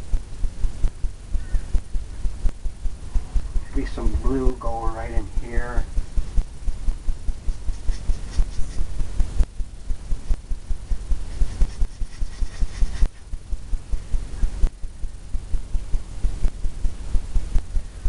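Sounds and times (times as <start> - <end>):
brush bristles rustling: 7.4 - 9.1, 11.0 - 13.3.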